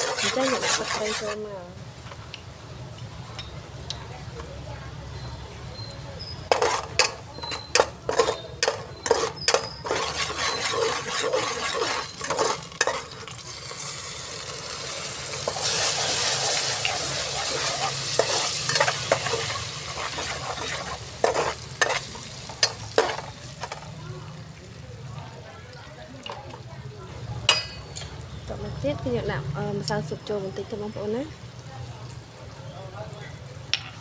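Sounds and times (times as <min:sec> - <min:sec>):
sauce sizzling: 0:00.0 - 0:02.9, 0:07.9 - 0:25.1
metal ladle clinking on wok: 0:06.5 - 0:13.2.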